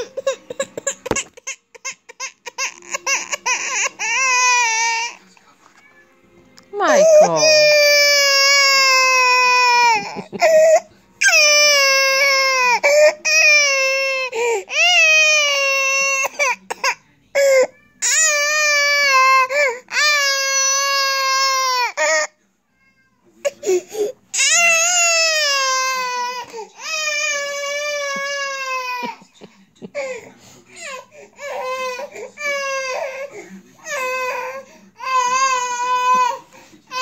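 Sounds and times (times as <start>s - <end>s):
toddler crying hard: 6.8s - 10.2s, 24.4s - 29.1s.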